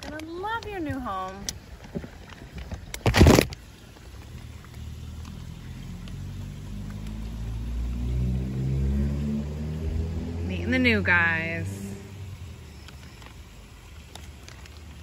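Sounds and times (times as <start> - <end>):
plastic bag crinkling: 0.0 - 7.1, 12.7 - 15.0
low hum: 0.8 - 14.8.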